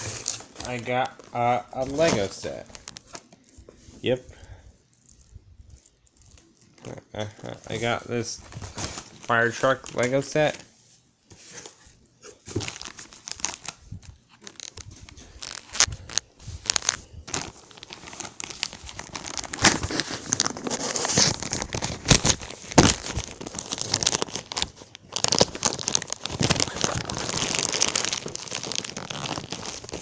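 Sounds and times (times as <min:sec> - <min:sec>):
plastic bag crackling and ripping: 0:00.0 - 0:03.5, 0:12.4 - 0:30.0.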